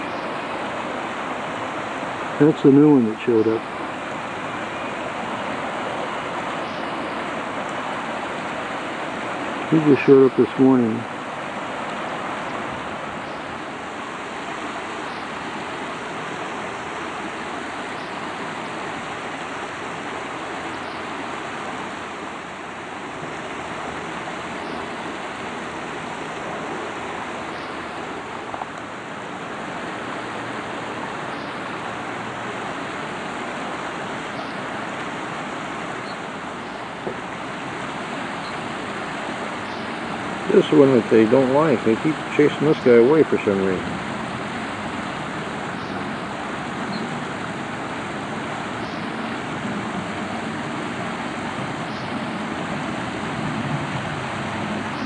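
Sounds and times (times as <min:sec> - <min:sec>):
creek water over gravel: 0:00.0 - 0:55.0.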